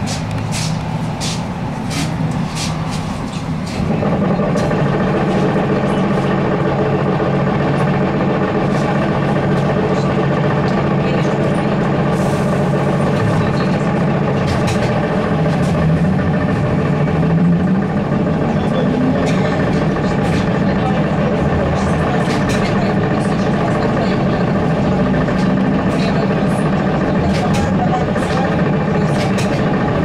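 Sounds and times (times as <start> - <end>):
electrical hum of trolleybus: 0.0 - 30.0.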